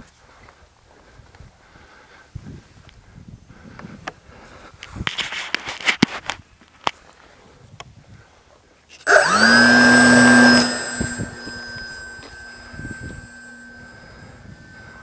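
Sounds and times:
model plane motor and propeller: 9.0s - 15.0s.

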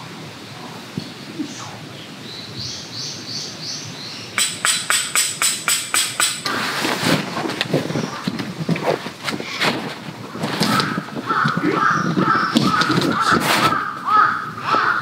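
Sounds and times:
small bird singing: 1.0s - 4.8s
tent peg being hammered: 4.4s - 6.6s
tent fabric rustling: 6.5s - 11.8s, 12.8s - 13.9s.

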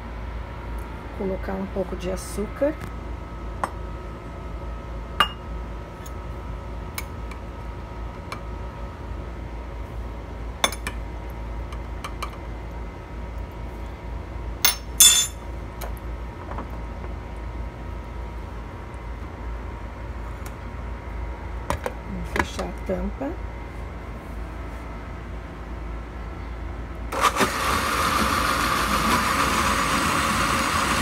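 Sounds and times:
metal spoon clinking on glass: 14.7s - 15.4s.

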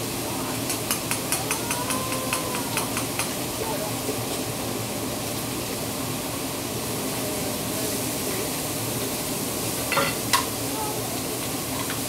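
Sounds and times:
food sizzling on a griddle: 0.0s - 12.0s
metal utensils clinking on griddle: 9.8s - 10.6s, 11.7s - 12.0s.

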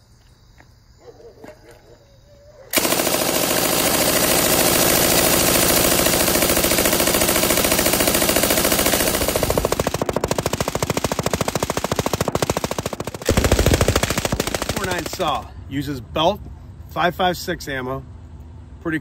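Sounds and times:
machine gun automatic fire: 2.8s - 15.5s.

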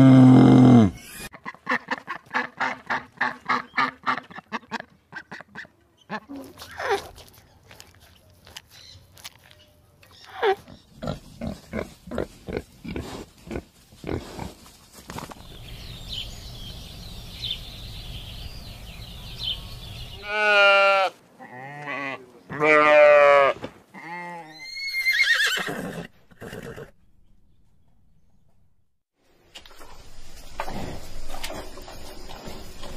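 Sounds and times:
pig grunting: 0.0s - 1.1s, 10.4s - 14.6s
horse whinnying: 0.0s - 1.3s, 22.6s - 26.9s.

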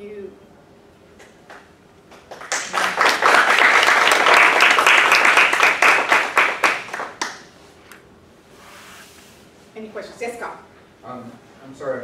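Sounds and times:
audience applauding: 2.1s - 7.4s.

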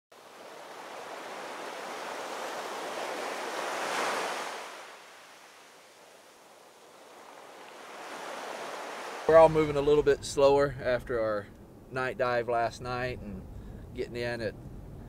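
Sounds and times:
waves washing on beach: 0.2s - 10.0s.

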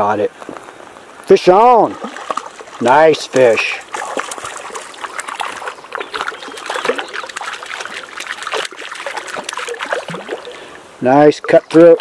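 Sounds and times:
fish splashing in water: 1.8s - 10.9s.

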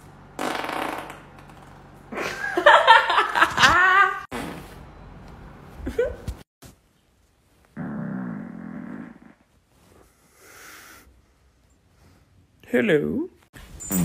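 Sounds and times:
woman farting: 0.4s - 1.6s, 4.3s - 4.7s
rising squeak: 13.6s - 14.0s.

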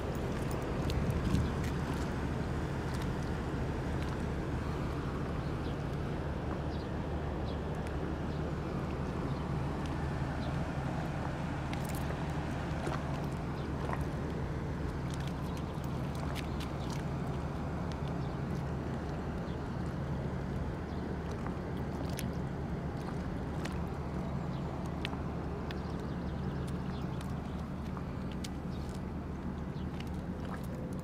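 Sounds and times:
low engine hum: 0.0s - 31.0s.

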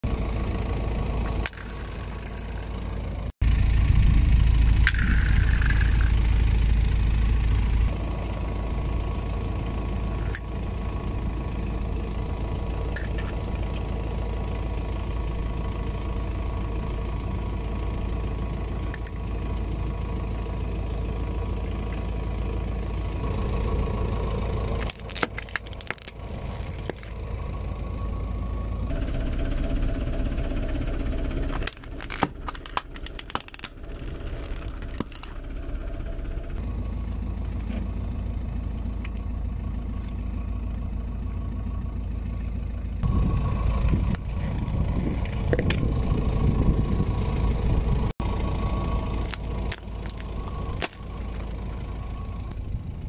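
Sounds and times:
car engine idling: 0.0s - 53.0s
toys crackling under tyre: 1.2s - 3.1s, 4.8s - 6.6s, 12.9s - 13.9s, 24.7s - 27.3s, 31.4s - 35.5s, 43.7s - 46.7s, 48.9s - 51.7s.

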